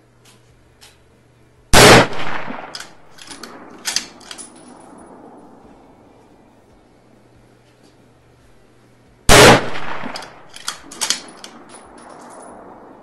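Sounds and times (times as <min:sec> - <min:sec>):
rifle shot with echo: 0:01.7 - 0:06.1, 0:09.3 - 0:13.0
metallic clicks and clacks: 0:02.5 - 0:05.0, 0:09.8 - 0:12.6.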